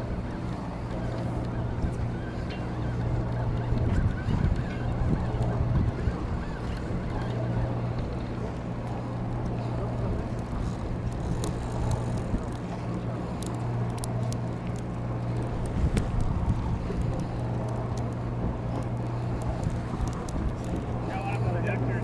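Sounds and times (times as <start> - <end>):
boat engine droning: 0.0 - 22.0.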